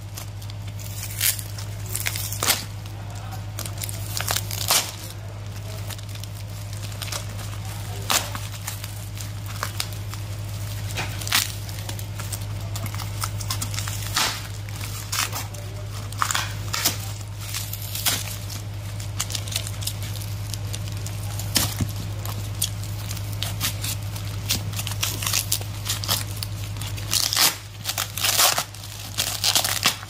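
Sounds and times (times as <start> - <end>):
sharp ripping: 0.0 - 30.0
steady hum: 0.0 - 30.0
tape and paper tearing: 0.1 - 5.4, 10.9 - 30.0.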